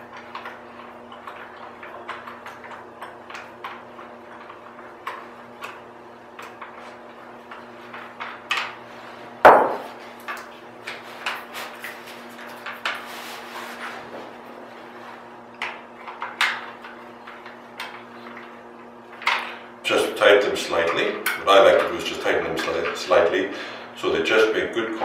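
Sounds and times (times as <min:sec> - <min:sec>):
louder knock: 0:09.5 - 0:09.9.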